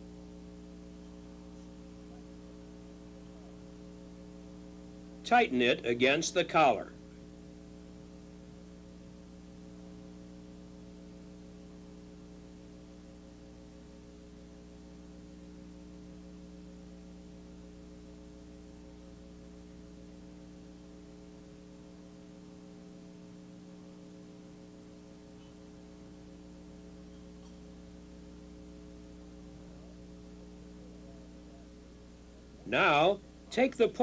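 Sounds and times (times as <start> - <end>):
steady electrical hum: 0.0 - 34.0
faint hiss: 24.4 - 34.0.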